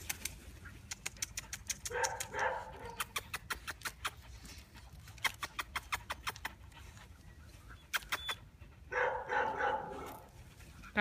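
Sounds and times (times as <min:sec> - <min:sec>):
puppy squeak: 0:07.8 - 0:08.5.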